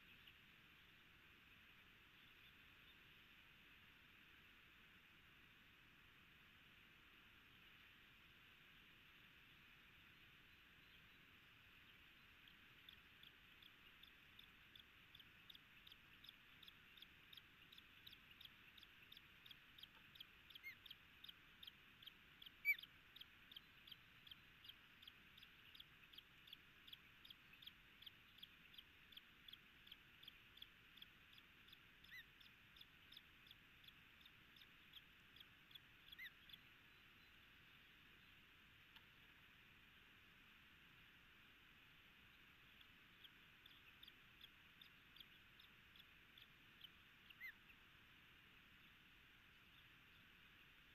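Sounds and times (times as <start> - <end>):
osprey chirping: 10.8 - 38.4, 42.2 - 47.9.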